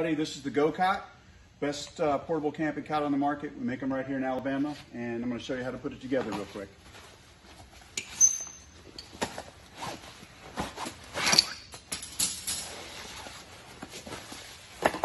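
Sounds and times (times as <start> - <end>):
fabric rustling: 6.0 - 8.0, 12.6 - 15.0.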